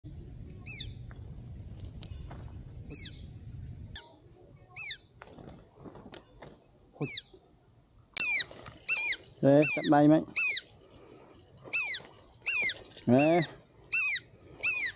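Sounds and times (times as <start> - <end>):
wind rumble on microphone: 0.1 - 4.0
bird shrill chirps: 2.9 - 3.3, 8.2 - 10.7, 11.7 - 14.9.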